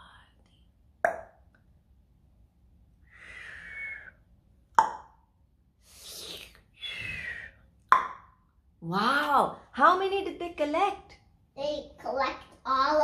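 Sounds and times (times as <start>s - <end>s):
mouth pops: 1.0s - 1.4s, 4.7s - 5.2s.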